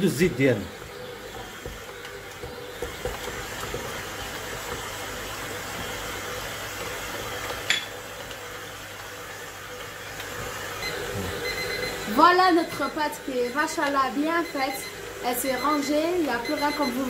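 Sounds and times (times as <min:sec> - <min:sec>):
stand mixer kneading dough: 0:00.0 - 0:17.0.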